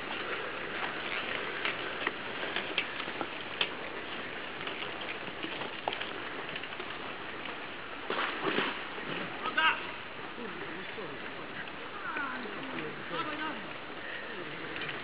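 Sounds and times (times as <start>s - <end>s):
bike tyres crunching on gravel: 0.0s - 9.9s.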